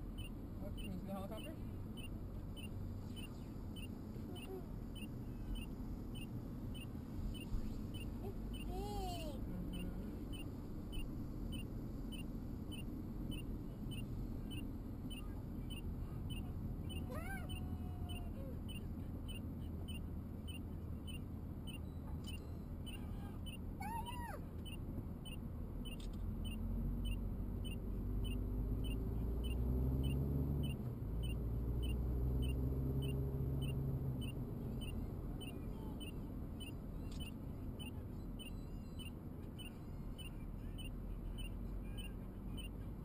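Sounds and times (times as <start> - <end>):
car road and engine rumble: 0.0 - 43.0
deep engine drone: 0.0 - 43.0
faint even ticking: 24.6 - 42.8.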